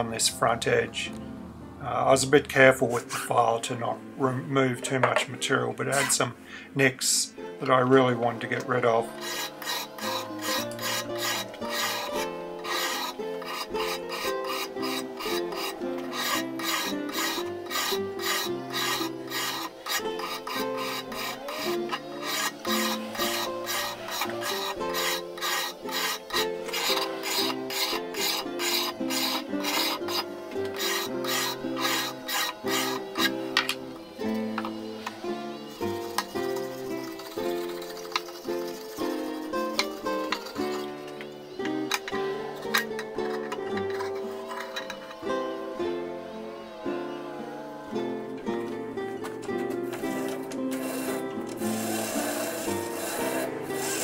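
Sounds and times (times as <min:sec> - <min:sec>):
hand file scraping steel blade: 0:05.9 - 0:06.2, 0:08.4 - 0:45.7, 0:49.9 - 0:54.0.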